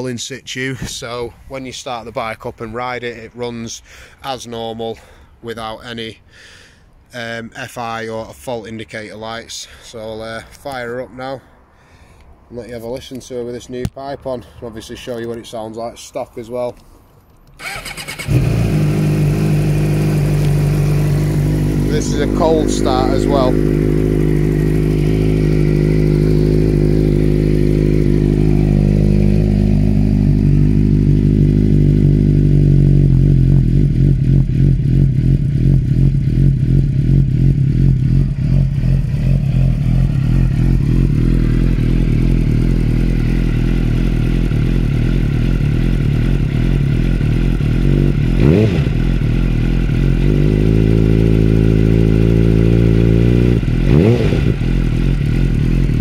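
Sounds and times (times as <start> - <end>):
motorcycle engine idling: 17.6 - 56.0.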